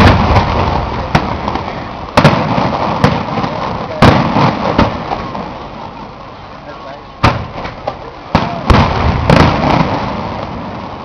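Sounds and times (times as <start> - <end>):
firework shells bursting: 0.0 - 6.2, 7.2 - 11.0.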